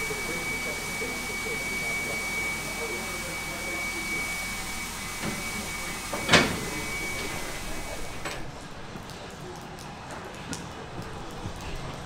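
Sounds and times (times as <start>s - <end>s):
faint high whine: 0.0s - 8.4s
steam hissing: 0.0s - 8.8s.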